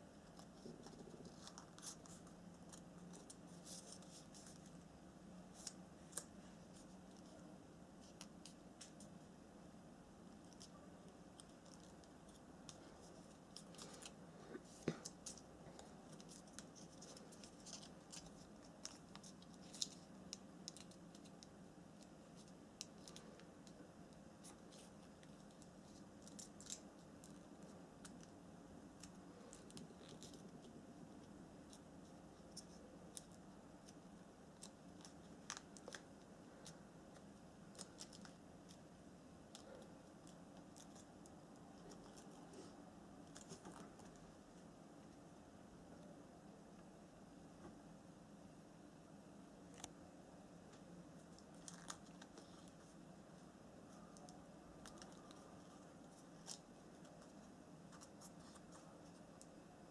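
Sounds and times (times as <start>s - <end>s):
low room hum: 0.0s - 59.9s
paper crinkling: 0.2s - 4.8s, 11.4s - 28.3s, 29.0s - 38.8s, 51.2s - 52.9s, 53.9s - 59.5s.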